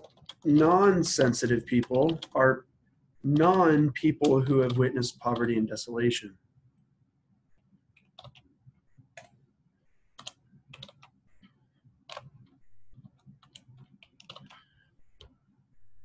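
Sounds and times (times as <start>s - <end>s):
computer keyboard keystrokes: 0.0s - 2.4s, 3.3s - 5.6s, 8.0s - 8.4s, 10.2s - 11.1s, 12.1s - 14.6s.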